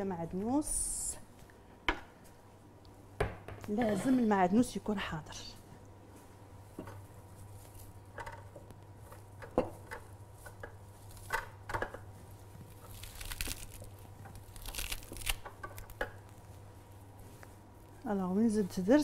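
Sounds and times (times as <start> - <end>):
herbs crinkling and rustling: 12.2 - 19.0.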